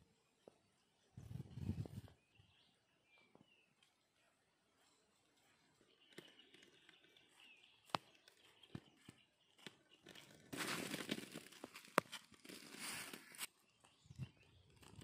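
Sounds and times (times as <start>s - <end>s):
footsteps crunching through dry grass: 7.3s - 13.5s.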